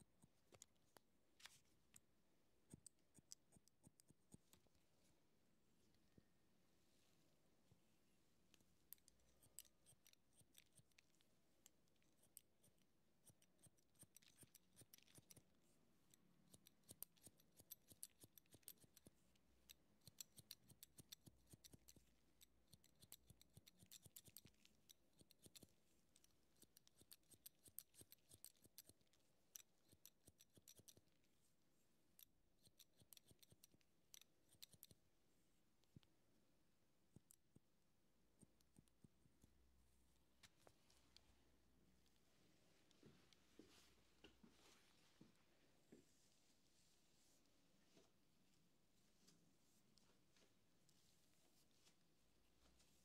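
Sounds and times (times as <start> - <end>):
scissors snipping hair: 8.6 - 15.5, 16.1 - 31.2, 32.1 - 35.0.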